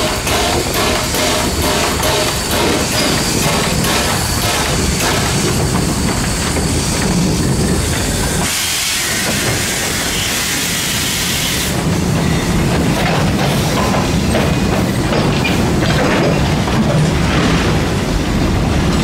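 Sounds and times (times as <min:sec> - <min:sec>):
steam hissing: 0:00.0 - 0:15.0
train wheels rumbling and clattering: 0:00.0 - 0:19.0.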